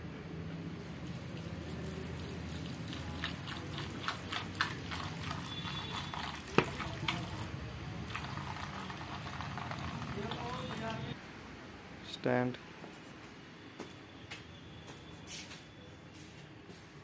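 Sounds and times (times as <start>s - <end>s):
water pouring into a steel bowl: 1.1s - 7.5s, 8.1s - 11.0s
kibble crackling and ticking: 1.8s - 7.4s.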